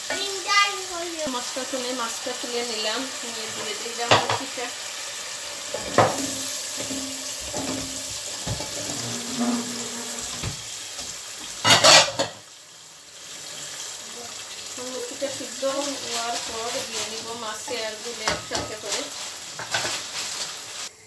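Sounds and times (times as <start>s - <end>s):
masala sizzling in a pot: 0.0s - 21.0s
pieces knocking against pot: 3.6s - 4.5s, 5.7s - 8.8s.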